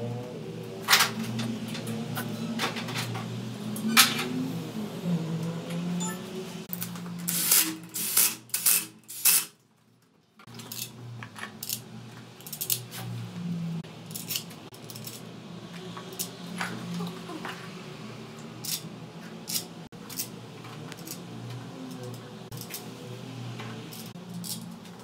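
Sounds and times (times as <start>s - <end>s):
metal parts clinking: 6.7s - 11.8s, 12.4s - 12.9s, 14.0s - 15.3s, 18.6s - 21.2s, 22.0s - 22.8s, 23.9s - 25.0s.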